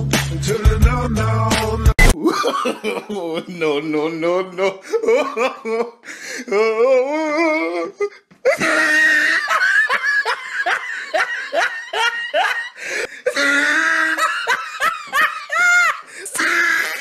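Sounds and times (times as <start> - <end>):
hearty laughter: 2.2 - 3.6, 8.5 - 16.1.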